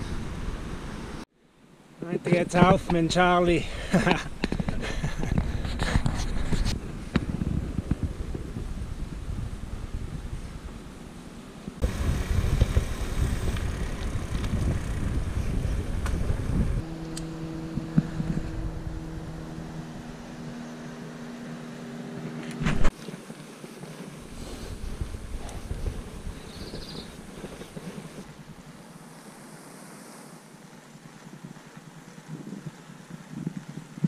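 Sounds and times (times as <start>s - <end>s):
wind buffeting microphone: 3.9s - 21.3s, 24.1s - 28.8s
steady buzzing hum: 11.8s - 29.8s.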